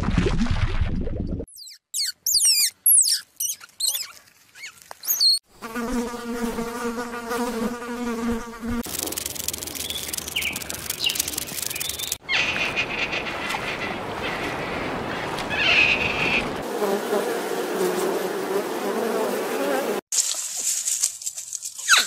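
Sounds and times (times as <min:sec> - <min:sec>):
high squeaky chirps: 0:01.5 - 0:05.4, 0:09.6 - 0:12.7, 0:21.8 - 0:22.0
insect-like buzz: 0:05.1 - 0:12.2.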